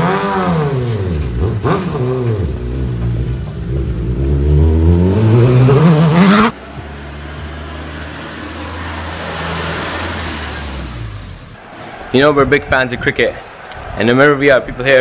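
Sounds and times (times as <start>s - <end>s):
motorcycle engine revving: 0.0s - 11.6s.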